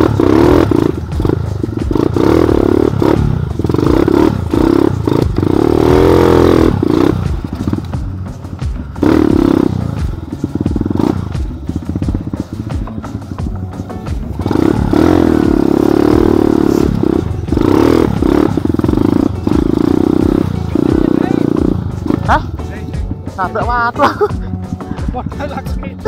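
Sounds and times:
motorcycle engine revving: 0:00.0 - 0:26.0
knocks and clatter: 0:06.8 - 0:16.4.

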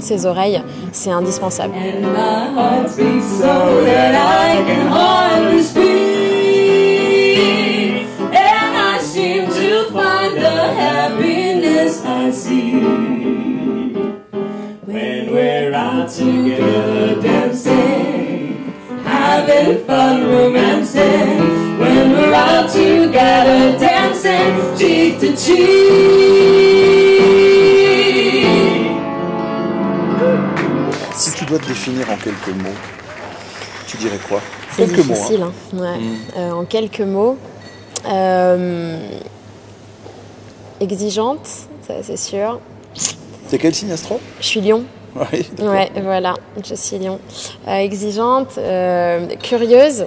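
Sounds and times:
piano: 0:00.0 - 0:35.1
woman and man singing duet: 0:01.5 - 0:14.0, 0:14.8 - 0:29.1, 0:34.8 - 0:36.4.

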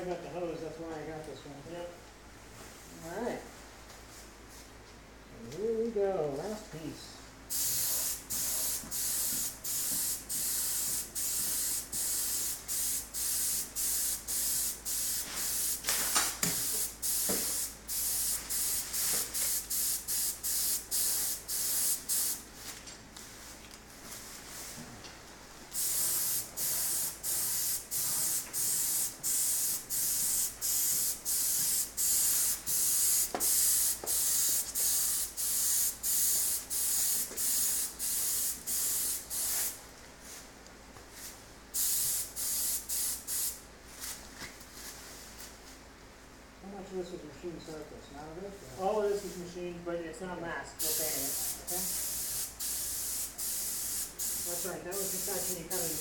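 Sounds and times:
paint spray gun hissing bursts: 0:07.5 - 0:22.4, 0:25.8 - 0:39.8, 0:41.8 - 0:43.6, 0:50.8 - 0:56.0.

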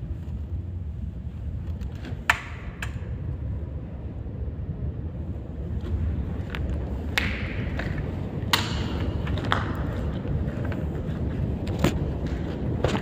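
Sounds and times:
wind rumble: 0:00.0 - 0:13.0
sharp clicks and knocks: 0:01.6 - 0:03.1.

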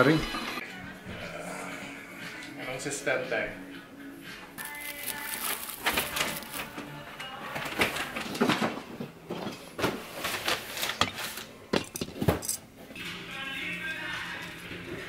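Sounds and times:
rustling: 0:04.6 - 0:09.0
ornaments clinking together: 0:11.8 - 0:12.7.

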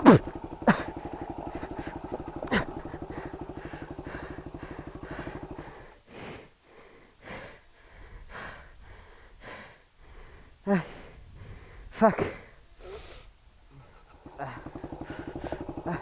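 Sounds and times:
motorcycle engine idling: 0:00.0 - 0:06.0, 0:13.6 - 0:16.0
person breathing heavily: 0:00.0 - 0:16.0.

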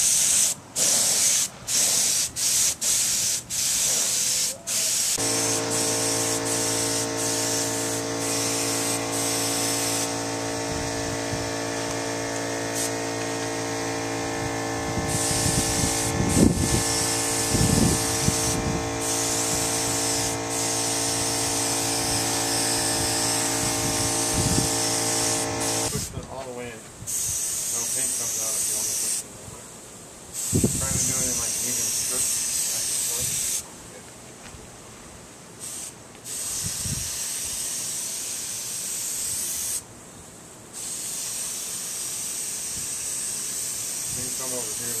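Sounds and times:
paint spray gun hissing: 0:00.0 - 0:26.2, 0:27.1 - 0:29.2, 0:30.4 - 0:33.6, 0:35.6 - 0:39.8, 0:40.8 - 0:45.0
motor humming: 0:05.2 - 0:25.9.

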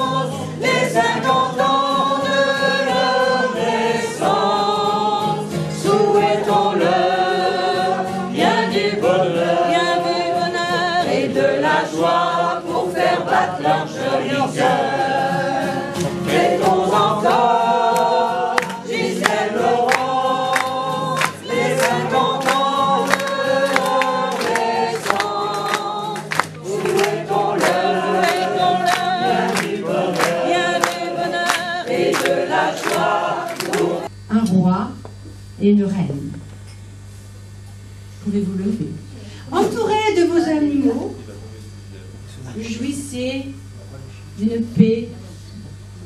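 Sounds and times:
group of people singing: 0:00.0 - 0:34.1.

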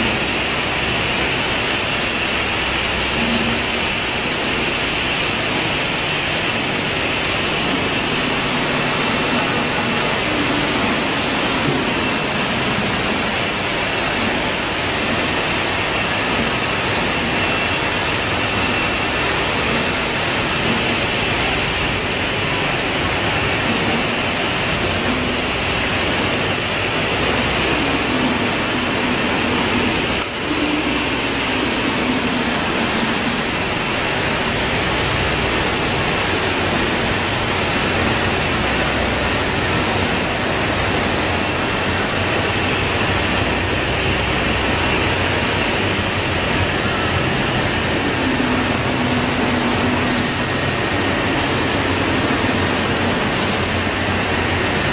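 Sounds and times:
machinery hiss: 0:00.0 - 0:54.9
machinery hum: 0:00.0 - 0:54.9.

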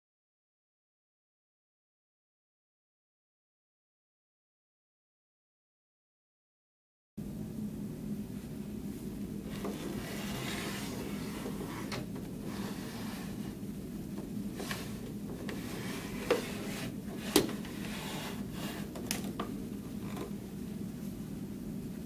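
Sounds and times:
steady low hum: 0:07.2 - 0:22.0.

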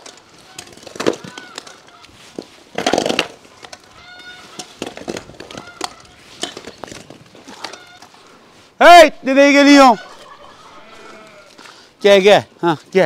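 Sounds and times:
poultry calling: 0:00.3 - 0:02.6, 0:03.5 - 0:06.7, 0:07.4 - 0:08.7, 0:09.7 - 0:11.9.

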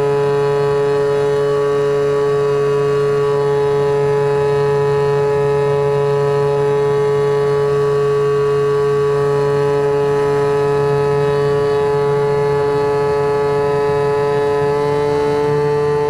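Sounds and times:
electric motor propeller whine: 0:00.0 - 0:16.0.

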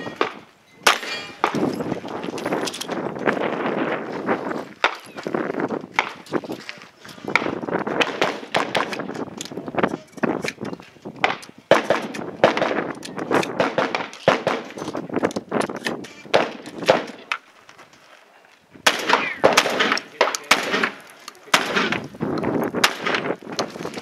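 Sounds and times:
shotgun shots echoing: 0:00.0 - 0:01.7, 0:07.3 - 0:09.1, 0:11.2 - 0:14.8, 0:16.1 - 0:17.3, 0:18.8 - 0:22.1, 0:22.8 - 0:23.4.

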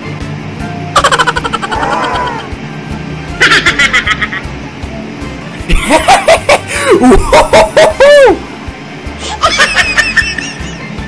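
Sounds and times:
high-pitched laughter: 0:01.0 - 0:02.4, 0:03.4 - 0:04.4.

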